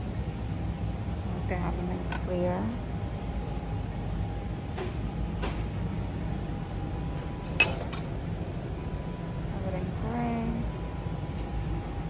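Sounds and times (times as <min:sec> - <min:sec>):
low background hum: 0:00.0 - 0:12.0
glass plates clinking: 0:07.6 - 0:08.2.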